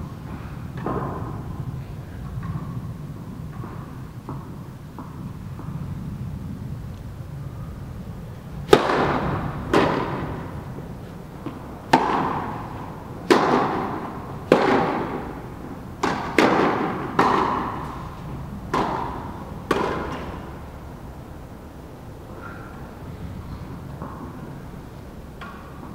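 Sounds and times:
tennis ball struck with rackets: 0:00.7 - 0:01.5, 0:03.5 - 0:05.8, 0:08.6 - 0:20.7, 0:23.9 - 0:24.6
ball bouncing on court: 0:08.7 - 0:10.8, 0:11.4 - 0:15.4, 0:16.0 - 0:18.0, 0:18.7 - 0:20.5.

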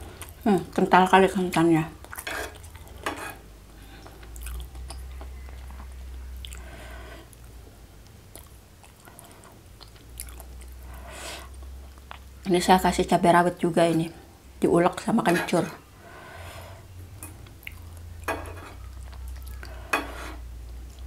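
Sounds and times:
fork and spoon scraping a bowl: 0:02.2 - 0:03.4, 0:18.3 - 0:18.8, 0:19.9 - 0:20.4
close chewing: 0:04.0 - 0:06.7, 0:07.3 - 0:10.9, 0:17.4 - 0:18.1.

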